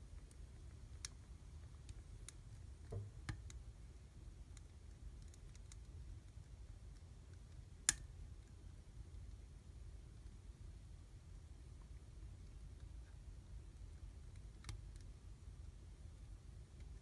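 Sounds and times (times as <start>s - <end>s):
wood fire crackling: 0.0s - 9.5s.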